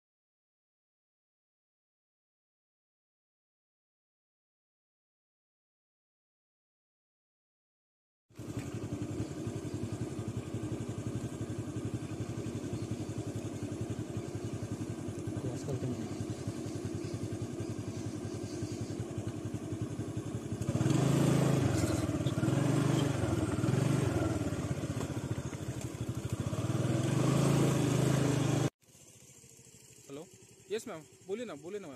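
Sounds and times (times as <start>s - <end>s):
vehicle engine idling: 8.4s - 31.9s.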